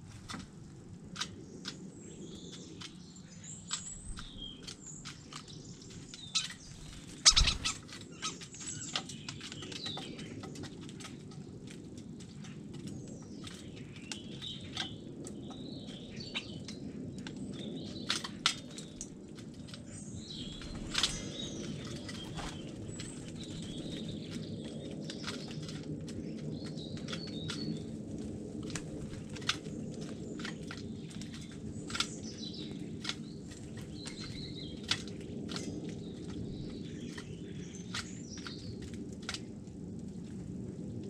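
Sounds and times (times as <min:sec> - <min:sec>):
beaks tapping on feeder: 0:07.2 - 0:11.4
bird chirps and whistles: 0:07.3 - 0:07.8.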